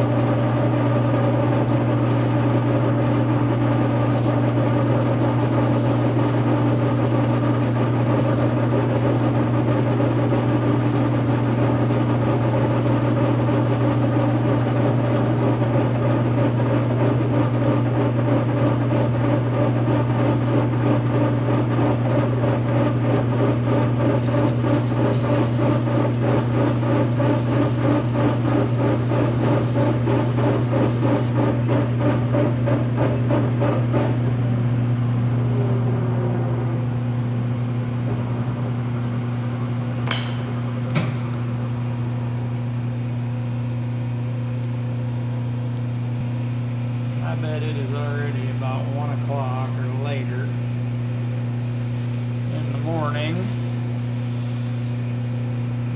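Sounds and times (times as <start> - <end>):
low machine hum: 0.0 - 55.9
file rasping on turning metal: 4.0 - 15.6, 24.2 - 31.3.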